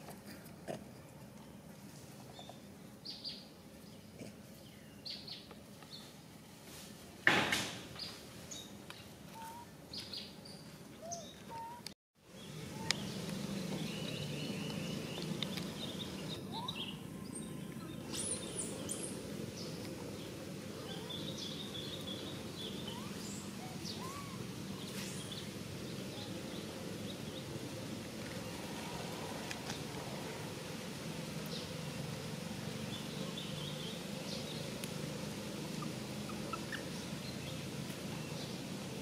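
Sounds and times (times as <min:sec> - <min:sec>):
bird chirps: 0:12.4 - 0:19.8.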